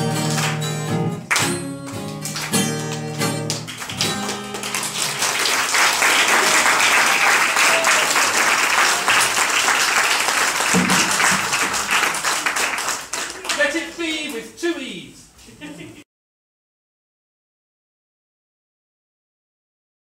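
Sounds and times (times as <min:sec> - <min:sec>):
audience applause: 0:00.0 - 0:00.7, 0:01.3 - 0:14.2.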